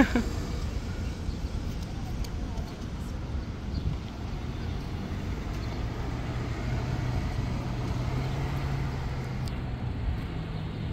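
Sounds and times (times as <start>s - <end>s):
road traffic noise: 0.0s - 10.9s
car engine passing: 4.0s - 10.9s.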